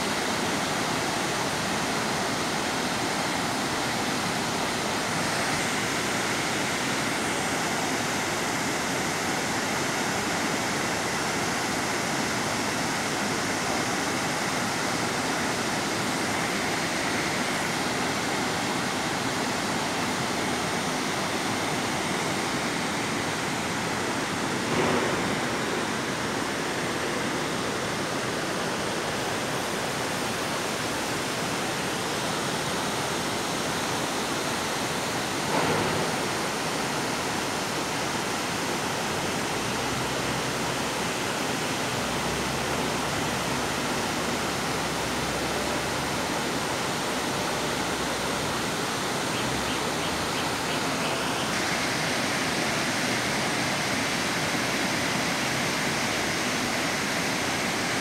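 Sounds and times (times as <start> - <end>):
stream cascading over rocks: 0.0 - 58.0
waterfall rushing: 0.0 - 58.0
brief loud bumps: 35.5 - 36.2.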